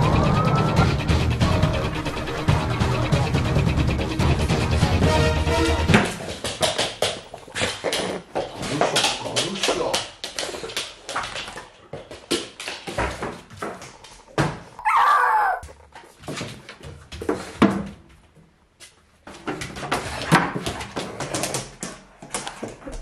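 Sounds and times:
dog claws clicking on wooden floor: 0:06.0 - 0:14.4
dog whining: 0:07.2 - 0:08.3, 0:14.7 - 0:15.9.

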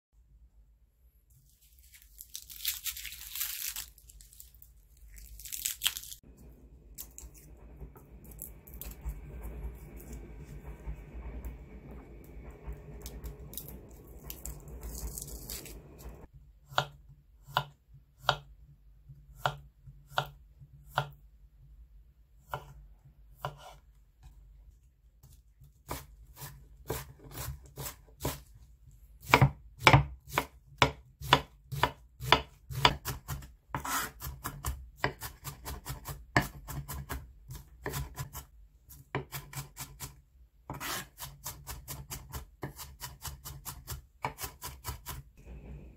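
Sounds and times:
soft rustle: 0:01.3 - 0:06.2
knife chopping on wooden board: 0:16.7 - 0:18.5, 0:19.1 - 0:21.2, 0:22.5 - 0:22.8, 0:23.4 - 0:23.8, 0:29.2 - 0:45.2.

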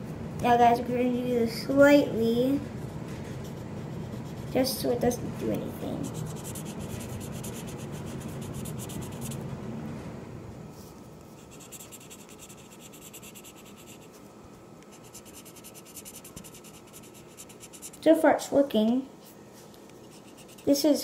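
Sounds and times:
marker scribbling on paper: 0:03.4 - 0:04.8, 0:06.0 - 0:09.4, 0:11.4 - 0:14.1, 0:15.0 - 0:18.0, 0:20.0 - 0:20.8.

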